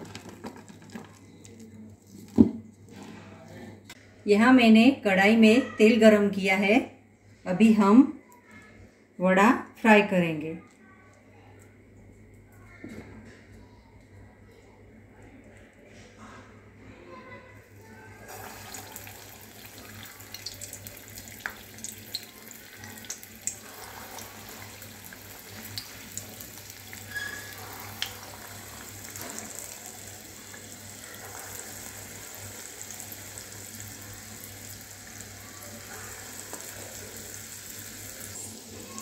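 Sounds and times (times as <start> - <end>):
oil crackling and popping: 0.0 - 2.4, 18.3 - 39.0
food deep-frying in hot oil: 18.3 - 39.0.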